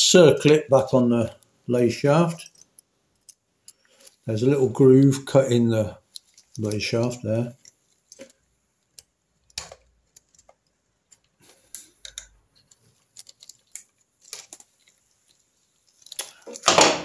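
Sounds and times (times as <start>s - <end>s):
light metal clicks and ticks: 2.3s - 4.2s, 7.5s - 15.0s.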